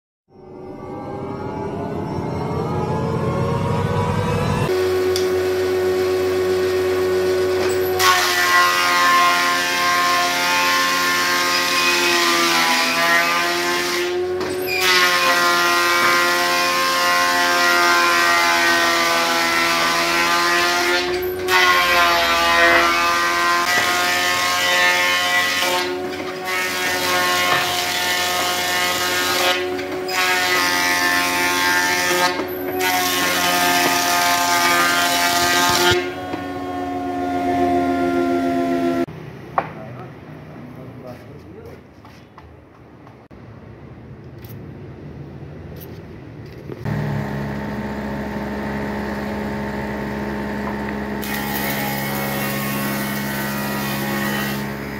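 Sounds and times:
thickness planer whining: 1.2 - 39.1, 46.8 - 54.9
planer cutting boards: 4.6 - 39.1, 46.8 - 54.9.

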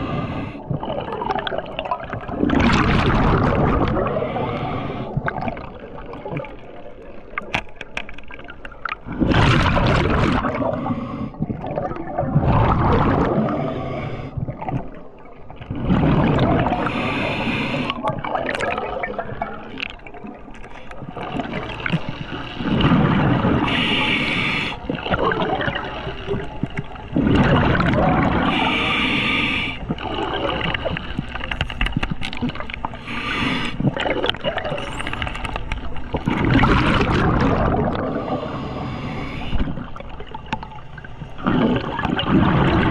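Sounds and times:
exhaled bubbles gushing underwater: 0.0 - 7.5, 8.3 - 42.9
hiss of inhaling through regulator: 4.2 - 5.2, 16.8 - 18.0, 23.6 - 25.0, 28.4 - 29.9, 32.9 - 34.0, 38.1 - 39.9.

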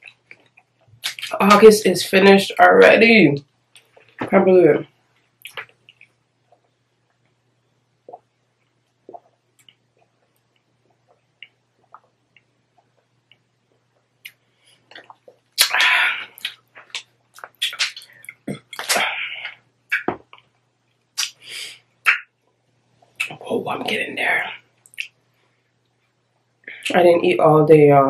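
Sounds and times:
person swallowing gulps: 8.0 - 20.5.

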